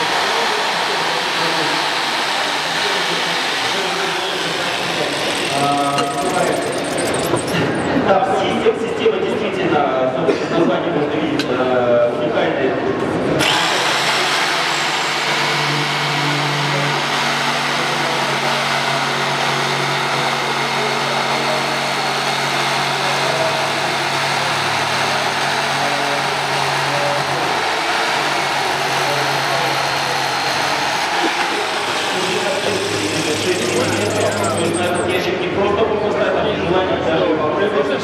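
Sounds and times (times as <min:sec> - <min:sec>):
jigsaw cutting wood: 0:00.0 - 0:07.9, 0:13.4 - 0:35.1.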